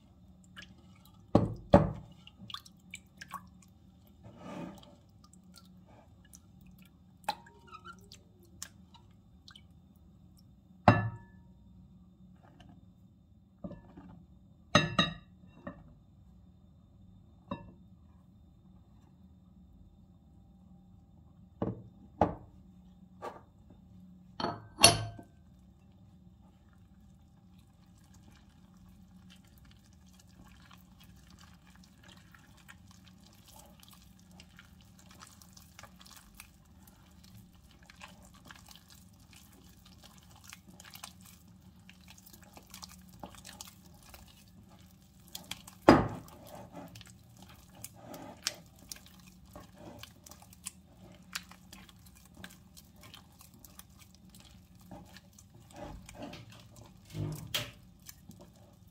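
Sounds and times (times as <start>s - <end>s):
kitchenware knocking: 24.4s - 25.2s.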